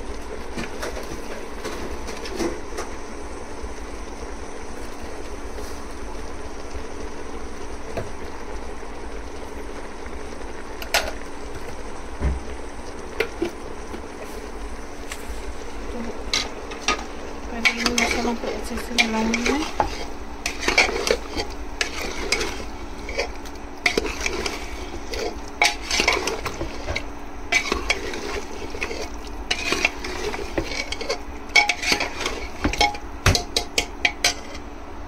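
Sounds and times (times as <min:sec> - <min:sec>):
meat sizzling in a pot: 0:00.0 - 0:35.0
spoon scraping and clinking pot: 0:17.6 - 0:34.6.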